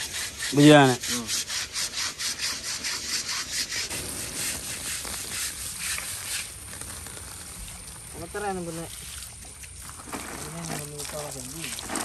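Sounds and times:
scrubbing rasping strokes: 0.0s - 7.9s.

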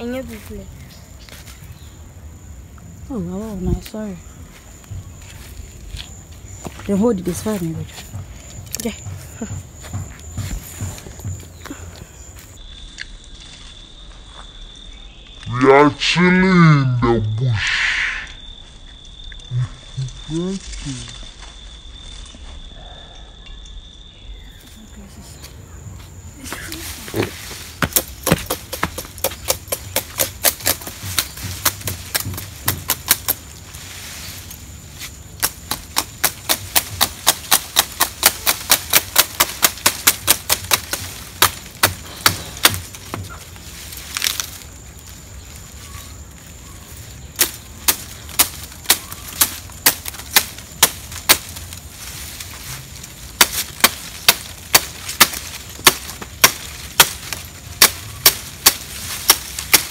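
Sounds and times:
blade chopping palm leaves: 27.1s - 33.6s, 35.0s - 44.6s, 47.4s - 59.9s.

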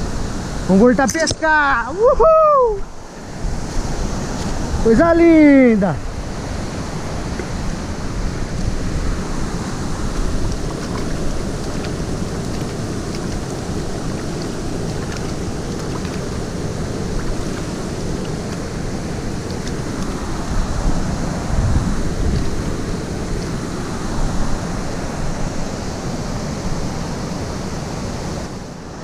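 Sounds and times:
stream flowing over rocks: 0.0s - 2.2s, 2.8s - 29.0s
hands splashing in water: 10.1s - 20.2s.

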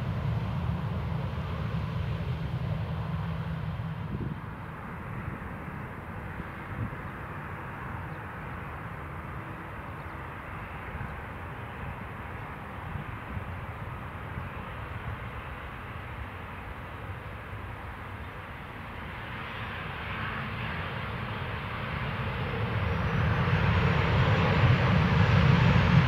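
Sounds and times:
jet airliner low rumble: 0.0s - 26.0s.

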